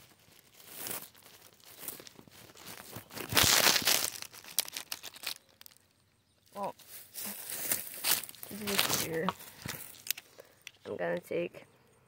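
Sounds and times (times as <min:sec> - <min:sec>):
twigs snapping: 0:00.0 - 0:10.8
dry stalks rustling and crackling: 0:00.0 - 0:11.4.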